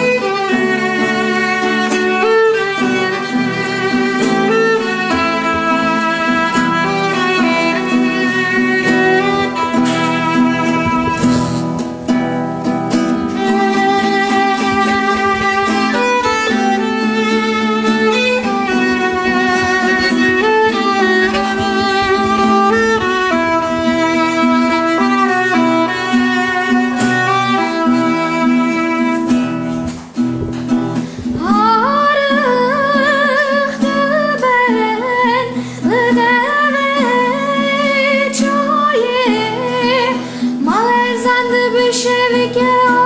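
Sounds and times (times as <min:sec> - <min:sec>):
boy singing with vibrato: 0:00.0 - 0:11.6, 0:31.2 - 0:43.0
acoustic guitar accompaniment: 0:00.0 - 0:43.0
violin melody: 0:00.0 - 0:43.0.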